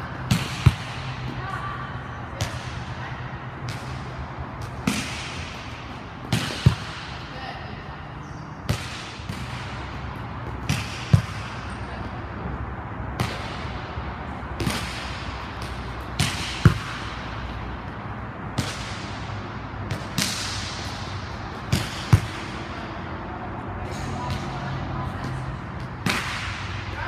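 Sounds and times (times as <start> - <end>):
volleyball slaps: 0.1 - 1.5, 3.6 - 7.3, 8.7 - 12.2, 13.1 - 23.0, 24.2 - 27.0.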